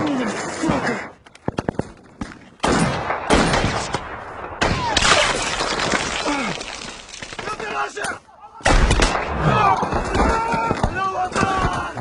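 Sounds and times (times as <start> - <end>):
rifle shots echoing: 2.6 - 5.8.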